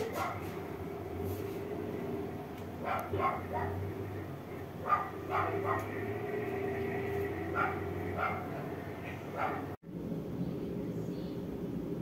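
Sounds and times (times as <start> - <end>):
dog barking: 0.0 - 0.6, 2.8 - 3.9, 4.8 - 6.0, 7.5 - 9.8
steady low hum: 0.0 - 12.0.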